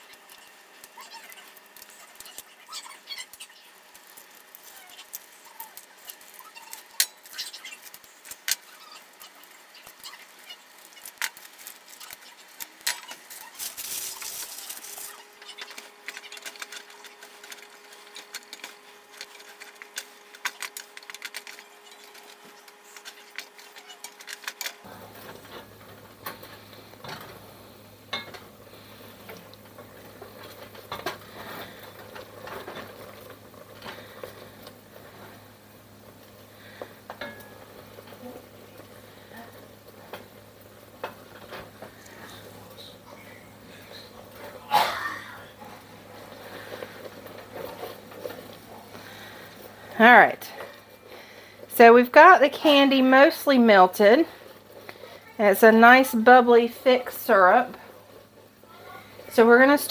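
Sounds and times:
plastic wrappers crinkling: 0.0 - 59.9
wooden spoon stirring in pot: 0.0 - 59.9
hard candy clinking on metal pot: 28.1 - 28.6, 36.6 - 40.4.

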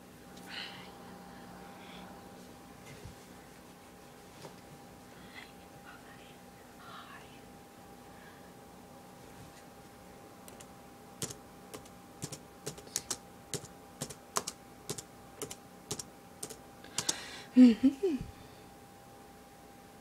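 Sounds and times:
laptop keyboard typing: 10.5 - 17.2.

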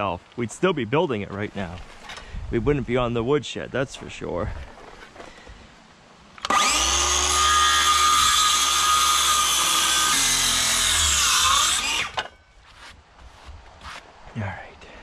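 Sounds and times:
circular saw cutting wood: 6.4 - 13.0.

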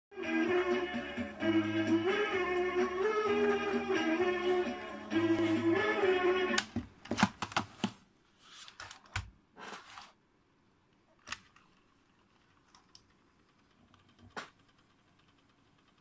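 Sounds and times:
cassette tape music: 0.1 - 7.7.

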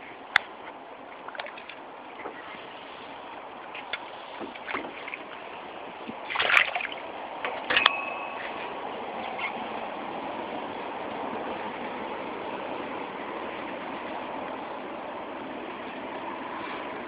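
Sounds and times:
water splashing and sloshing: 0.0 - 9.9.

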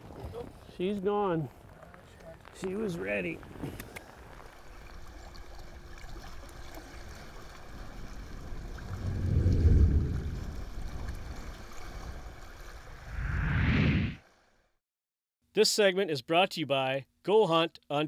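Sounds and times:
wind: 0.0 - 14.6
water: 1.5 - 13.2
deep whoosh: 8.7 - 11.4, 13.0 - 14.2.

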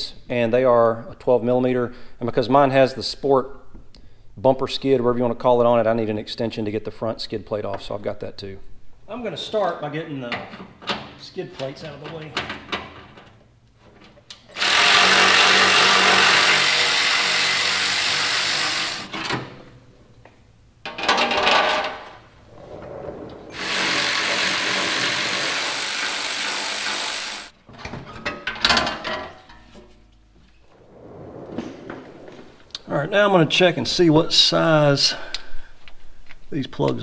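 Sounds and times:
cordless ratchet spinning bolts: 14.6 - 19.1
knocks and clatter of metal plate: 20.8 - 22.3, 27.7 - 30.0.

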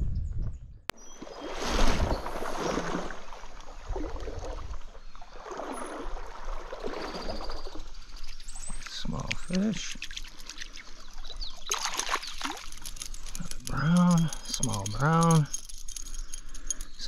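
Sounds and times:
stream water splashing: 1.1 - 14.4.

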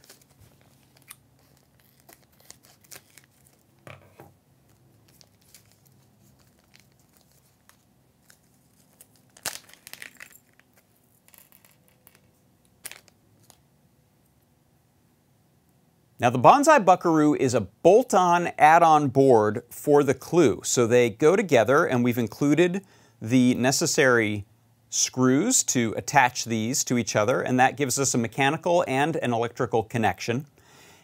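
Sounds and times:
plastic bag crinkling: 0.0 - 4.1, 4.7 - 13.6.

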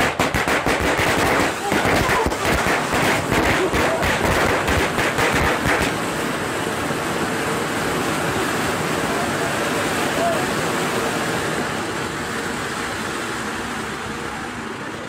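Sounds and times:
rapid crackling pops: 0.0 - 6.4
firework fountain hissing: 0.0 - 15.0.

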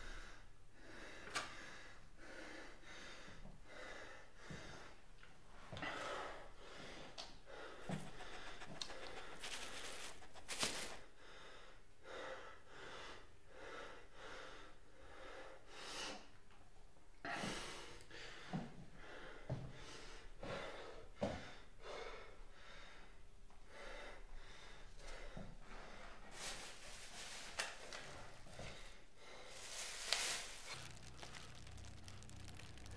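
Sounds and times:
faint breaths or snorts: 5.9 - 11.6.

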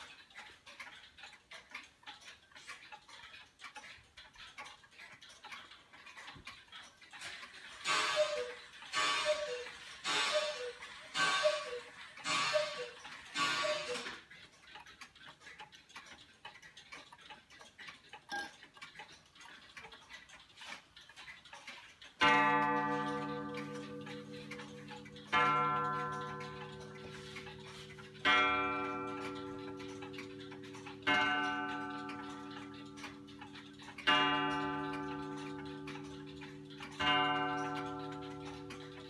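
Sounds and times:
clock gong ringing: 22.2 - 39.0.

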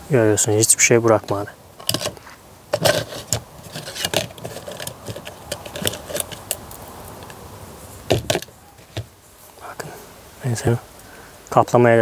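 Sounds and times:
circuit boards clattering in plastic tub: 2.8 - 6.6, 8.1 - 9.1.

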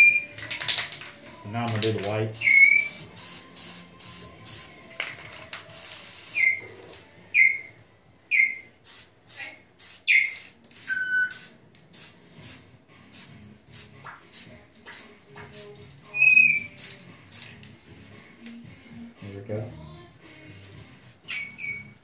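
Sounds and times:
spray can hissing: 1.7 - 6.9, 8.8 - 17.8
high falling chirps: 2.4 - 3.2, 16.1 - 16.8.

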